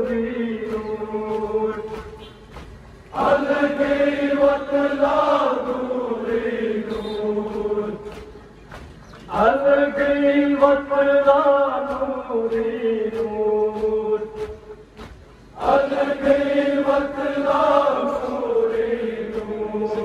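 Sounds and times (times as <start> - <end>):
men chanting a lament over loudspeakers: 0.0 - 2.5, 3.1 - 8.6, 9.3 - 15.0, 15.6 - 20.0
chest-beating slaps: 0.6 - 4.6, 6.3 - 9.5, 11.9 - 16.6.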